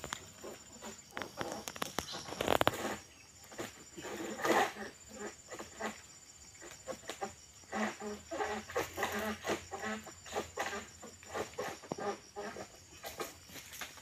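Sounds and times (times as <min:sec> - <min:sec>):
sickle cracking and knocking: 0:00.0 - 0:03.8.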